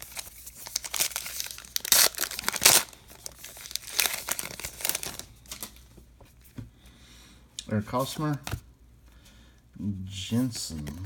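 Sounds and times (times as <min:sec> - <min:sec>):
wrapper tearing and crinkling: 0:00.0 - 0:05.8.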